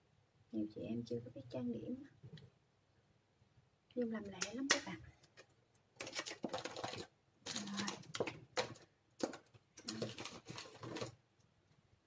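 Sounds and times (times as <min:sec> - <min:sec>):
small items rummaged and clicking: 0:05.2 - 0:11.2.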